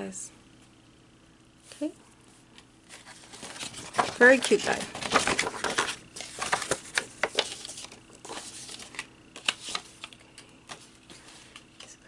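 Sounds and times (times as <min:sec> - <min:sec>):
card packaging clicks and rustles: 0:02.9 - 0:12.0.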